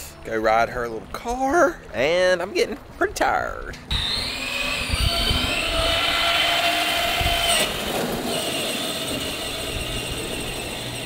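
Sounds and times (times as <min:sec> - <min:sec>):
electric motor whining: 0:03.9 - 0:11.0
wheels crunching on gravel: 0:06.9 - 0:11.0.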